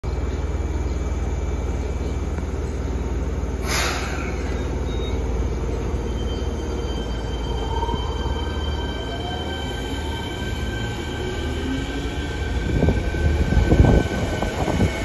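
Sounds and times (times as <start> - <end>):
rising train whine: 0.1 - 15.0
train inverter humming: 0.1 - 15.0
air hiss: 3.6 - 4.5.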